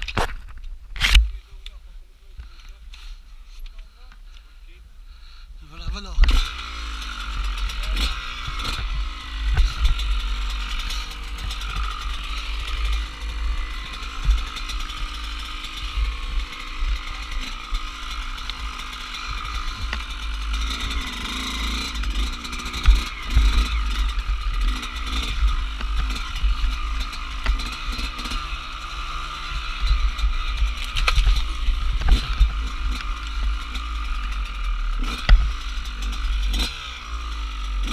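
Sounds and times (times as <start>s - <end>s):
dirt bike engine revving: 5.7s - 37.9s.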